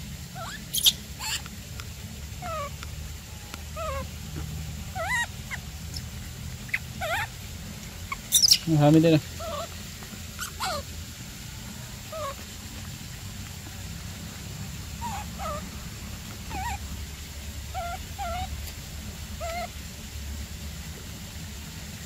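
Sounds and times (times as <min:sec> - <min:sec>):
low steady rumble: 0:00.0 - 0:22.0
baby monkey whimpering: 0:00.3 - 0:01.5, 0:02.4 - 0:02.8, 0:03.6 - 0:04.2, 0:04.9 - 0:07.4, 0:08.0 - 0:08.7, 0:09.4 - 0:09.8, 0:10.4 - 0:10.9, 0:12.1 - 0:12.5, 0:15.0 - 0:17.0, 0:17.7 - 0:19.8.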